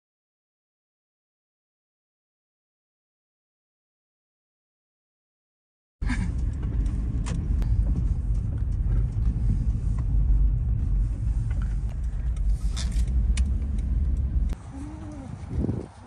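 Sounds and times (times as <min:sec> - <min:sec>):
car engine and road rumble: 0:06.0 - 0:16.0.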